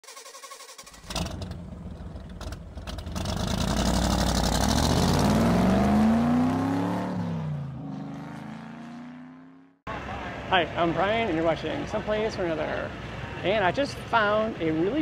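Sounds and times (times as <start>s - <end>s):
vehicle engine starting and accelerating: 0.1s - 9.8s.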